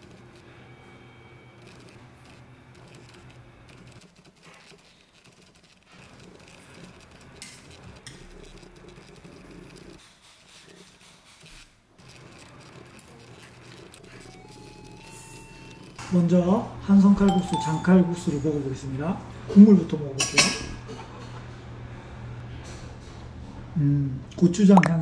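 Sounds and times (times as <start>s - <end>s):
faint background music: 16.2s - 20.1s.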